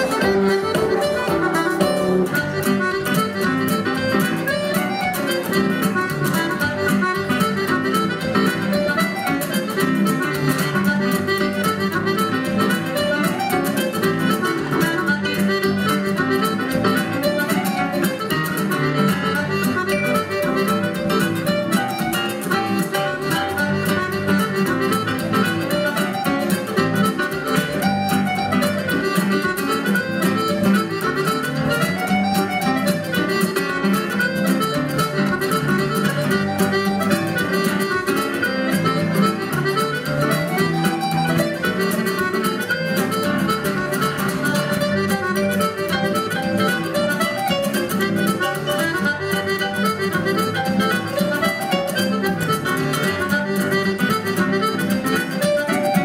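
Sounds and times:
melody instruments: 0:00.0 - 0:10.7
strummed accompaniment: 0:00.0 - 0:56.0.

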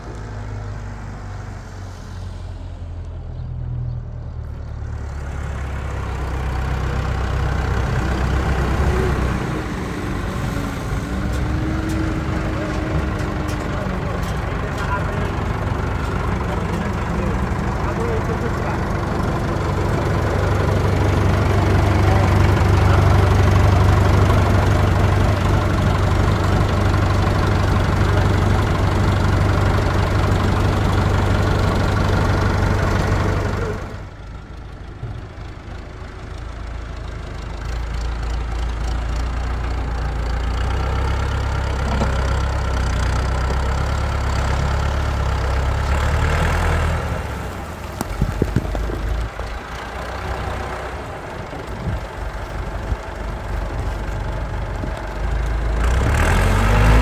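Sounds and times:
tractor diesel engine running: 0:00.0 - 0:57.0
soil and rocks tipping onto pile: 0:47.9 - 0:49.1.

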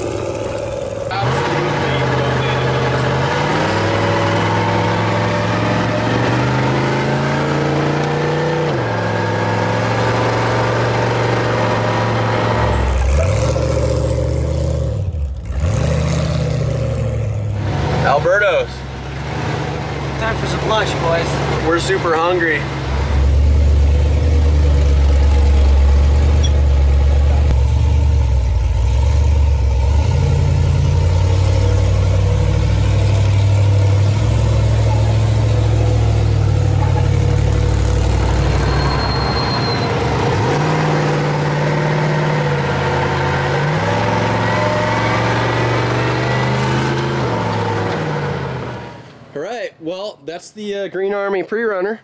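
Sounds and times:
truck engine accelerating: 0:00.0 - 0:49.5.

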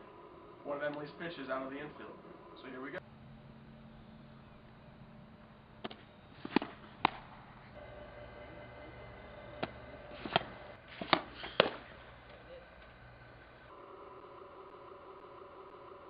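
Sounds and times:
faint steady hum: 0:00.0 - 0:16.0
ball smacking into leather mitt: 0:05.8 - 0:07.2, 0:09.6 - 0:11.8.

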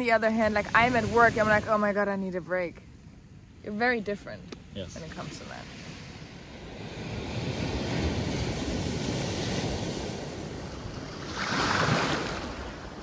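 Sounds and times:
wind rumbling on microphone: 0:00.0 - 0:13.0
small waves breaking on sand: 0:04.8 - 0:13.0.

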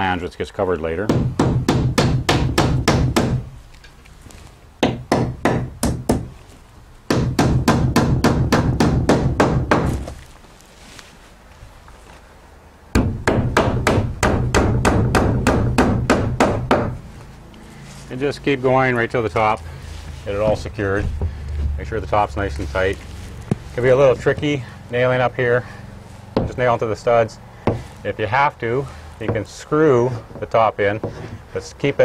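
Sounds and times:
hammer driving nails into wood: 0:01.1 - 0:03.5, 0:04.8 - 0:06.3, 0:07.1 - 0:10.2, 0:13.0 - 0:17.0.

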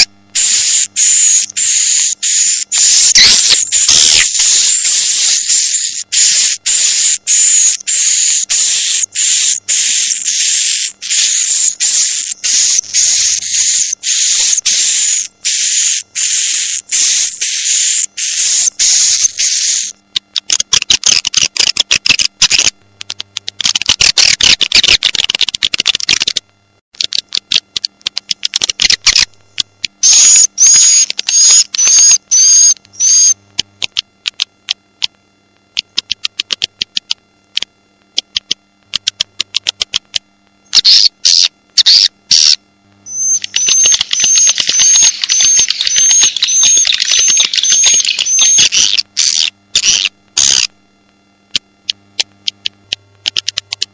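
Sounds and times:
harsh buzzy bird chirps: 0:00.0 - 0:20.0, 0:30.0 - 0:33.4, 0:40.6 - 0:50.7
rapid clicking twitters: 0:00.0 - 0:50.7.

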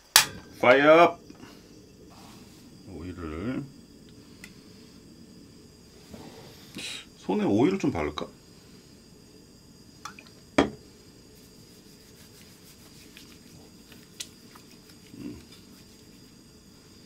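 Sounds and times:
oily hands rubbing together: 0:11.3 - 0:16.4.

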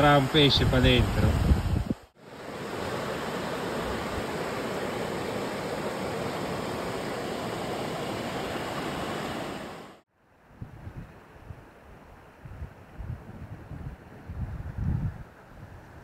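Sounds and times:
wind gusts on microphone: 0:00.0 - 0:16.0
rushing water of a torrent: 0:02.2 - 0:10.0.

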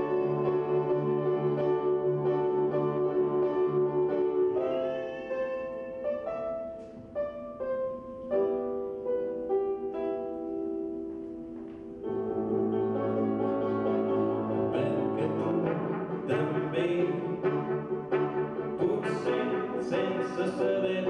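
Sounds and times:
trumpet playing: 0:00.0 - 0:06.8, 0:12.0 - 0:21.0
piano playing slow notes: 0:00.0 - 0:21.0.

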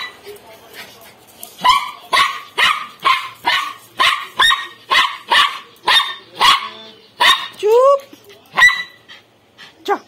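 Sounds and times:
small dog barking: 0:01.6 - 0:07.6, 0:08.6 - 0:09.0.

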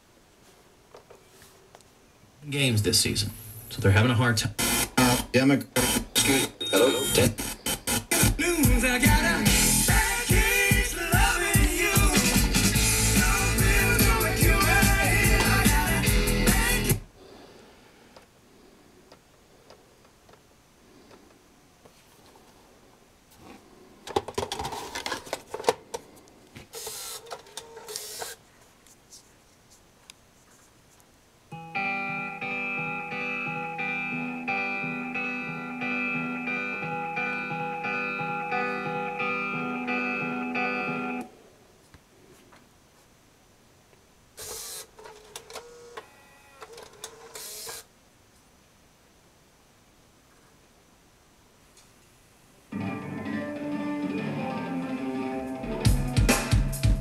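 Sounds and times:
disc changer motor whirring: 0:04.6 - 0:08.4
plastic clicks and clatter: 0:24.0 - 0:26.1.

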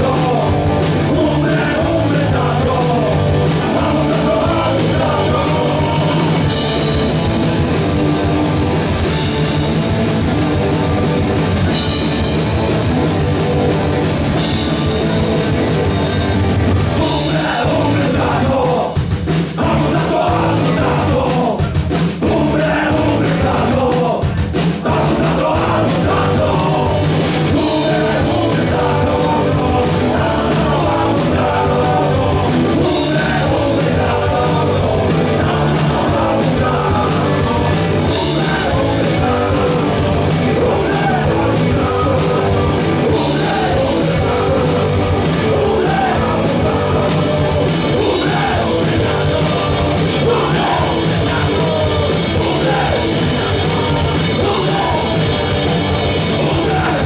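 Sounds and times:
bass guitar: 0:00.0 - 0:57.0
distorted electric guitars: 0:00.0 - 0:57.0
drum kit: 0:00.0 - 0:57.0
singer shouting vocals: 0:17.0 - 0:19.0, 0:19.6 - 0:55.6, 0:56.2 - 0:57.0.

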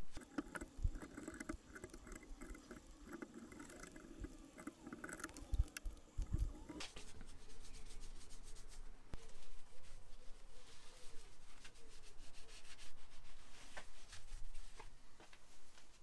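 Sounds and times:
cloth rubbing on metal: 0:00.0 - 0:14.9.

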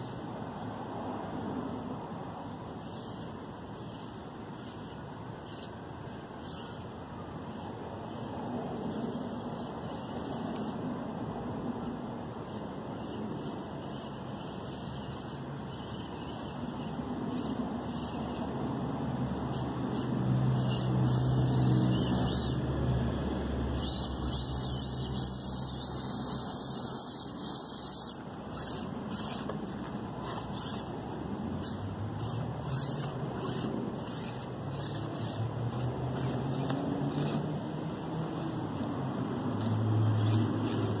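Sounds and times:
small electric motor whining: 0:02.7 - 0:10.8, 0:11.8 - 0:41.0
tyres clicking and scraping on stone: 0:23.2 - 0:37.5.

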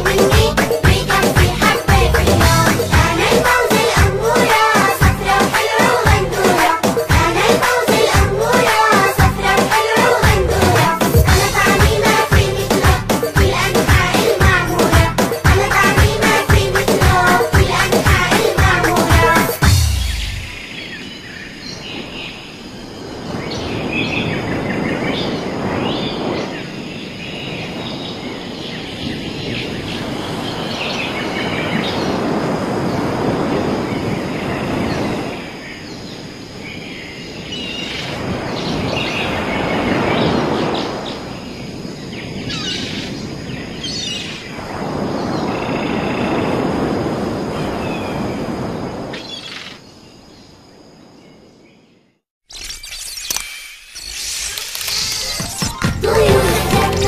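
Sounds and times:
rushing noise: 0:00.0 - 0:21.1
birds chirping: 0:15.7 - 0:32.2.

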